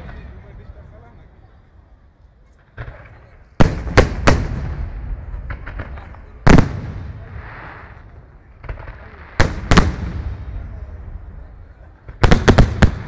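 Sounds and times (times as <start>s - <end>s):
firework crackling: 2.6s - 13.0s.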